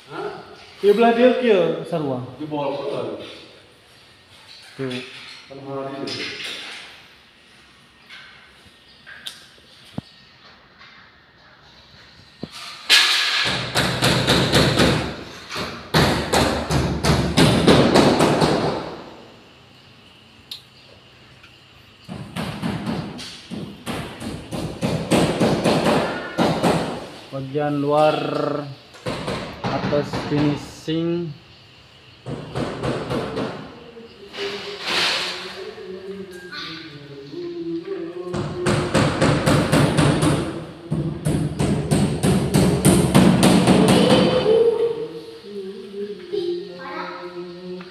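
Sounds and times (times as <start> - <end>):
rapid hammering on ceiling: 12.9 - 19.2, 22.0 - 27.2, 29.0 - 30.8, 32.2 - 33.8, 38.3 - 44.5.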